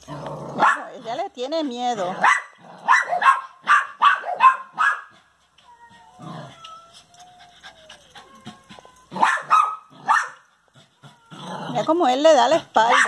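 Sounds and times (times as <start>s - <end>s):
small dog barking: 0.6s - 0.9s, 2.2s - 5.2s, 9.1s - 10.4s
thin wavering cry: 5.6s - 9.2s.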